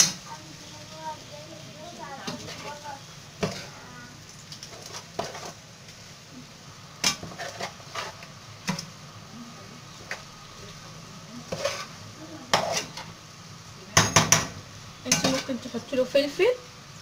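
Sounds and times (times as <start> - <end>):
meat sizzling: 0.0 - 17.0
metal spoon clinking in a pan: 15.1 - 15.6.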